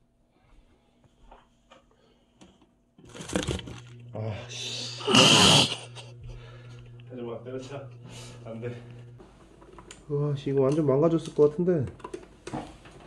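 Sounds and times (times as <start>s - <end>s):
cup rattling and scraping in box: 3.0s - 3.9s
electric motor humming: 3.1s - 9.2s.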